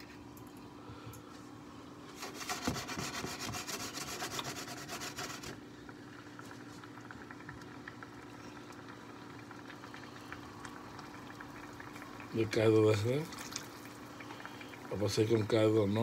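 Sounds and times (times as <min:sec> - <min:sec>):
skillet scraping on stove: 0:02.1 - 0:05.6
liquid simmering with small pops: 0:05.2 - 0:16.0.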